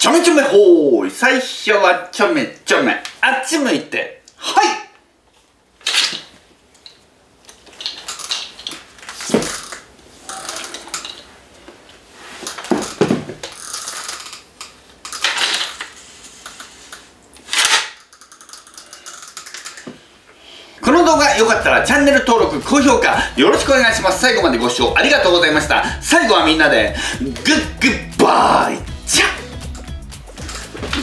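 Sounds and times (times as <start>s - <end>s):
plastic clattering: 5.8s - 11.4s, 12.4s - 20.0s
toy sword swishing: 9.1s - 11.3s, 30.3s - 31.0s.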